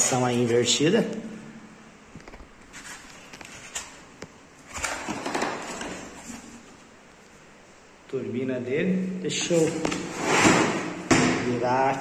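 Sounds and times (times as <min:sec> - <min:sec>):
rubbing and rustling: 0:02.4 - 0:07.0.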